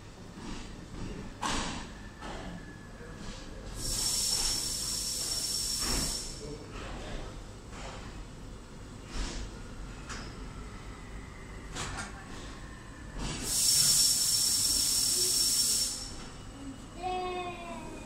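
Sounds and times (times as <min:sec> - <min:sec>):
low train rumble: 0:00.0 - 0:18.0
air release hiss: 0:03.8 - 0:06.4, 0:13.4 - 0:16.3
train clunks: 0:05.8 - 0:06.9
thin steady whistle: 0:12.6 - 0:16.7.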